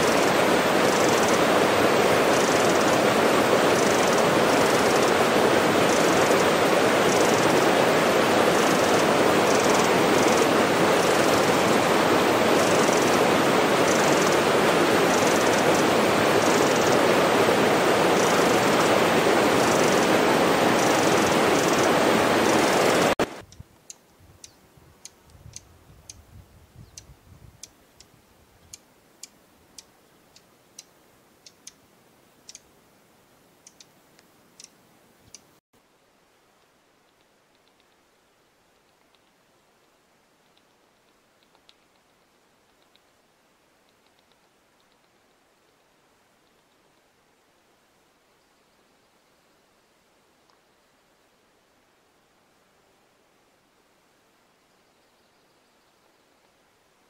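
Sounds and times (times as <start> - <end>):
wren singing: 0.0 - 1.4, 2.3 - 3.0, 3.7 - 5.2, 5.8 - 7.6, 8.6 - 11.6, 12.6 - 13.2, 13.8 - 14.5, 15.1 - 17.0, 20.8 - 26.2, 28.7 - 31.8
running water rushing: 0.0 - 23.4
sharp ticks: 28.7 - 31.8, 33.6 - 33.9, 34.6 - 35.5.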